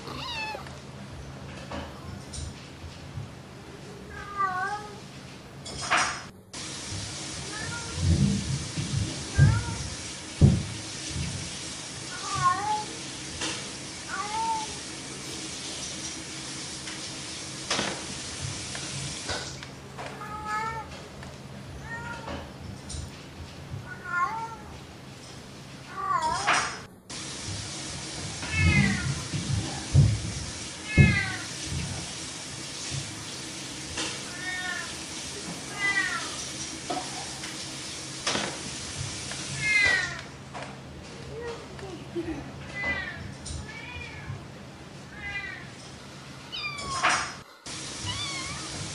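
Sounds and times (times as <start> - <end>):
cat meowing: 0.0 - 0.8, 20.2 - 20.9, 23.9 - 24.7, 28.4 - 29.2, 46.5 - 47.1, 48.0 - 48.8.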